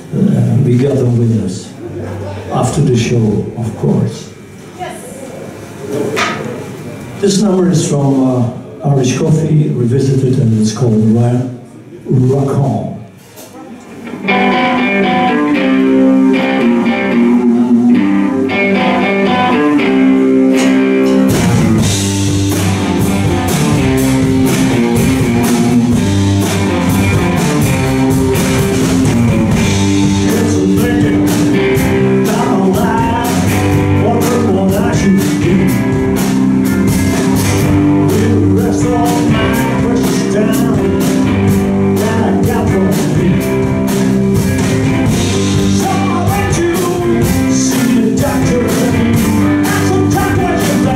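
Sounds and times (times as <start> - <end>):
electric guitar: 13.5 - 50.9
rock band playing live: 14.0 - 50.9.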